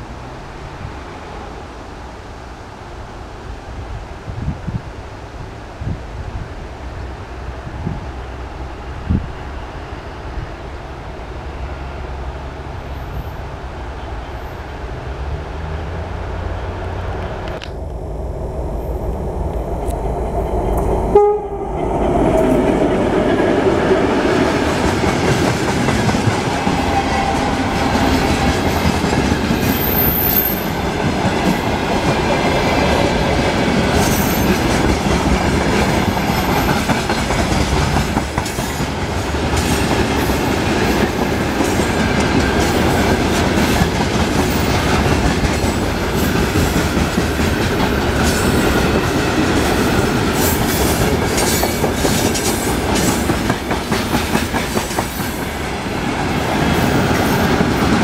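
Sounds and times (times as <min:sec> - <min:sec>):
diesel locomotive engine rumbling: 0:00.0 - 0:58.0
locomotive horn blast: 0:21.1 - 0:21.8
train wheels clacking on rails: 0:21.8 - 0:58.0.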